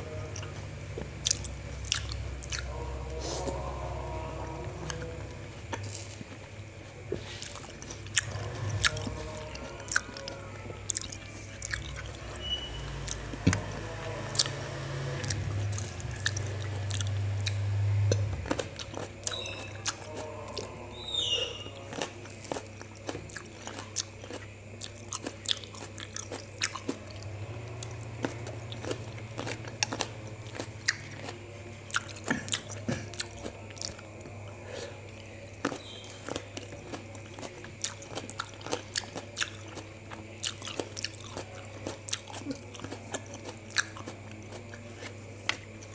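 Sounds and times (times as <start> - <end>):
chewing grapes: 0.0 - 45.9.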